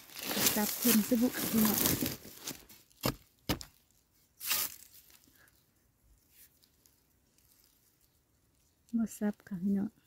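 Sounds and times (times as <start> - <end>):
sharp knocks in soil: 3.0 - 3.8.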